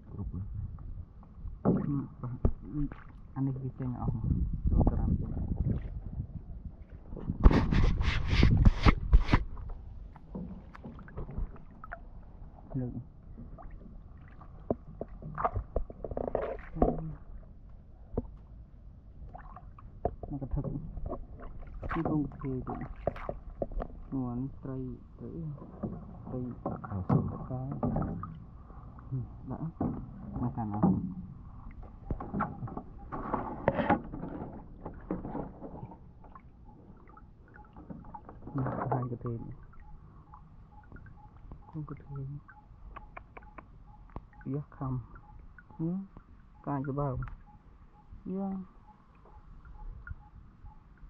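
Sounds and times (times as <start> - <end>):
low rumble: 0.0 - 16.1.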